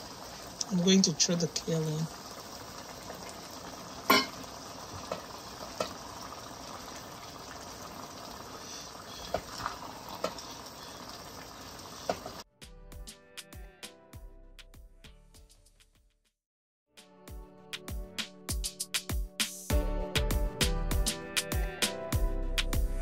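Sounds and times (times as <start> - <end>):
soup simmering and bubbling: 0.0 - 12.4
metal spoon clinking on pot: 4.1 - 4.4
music: 12.5 - 23.0.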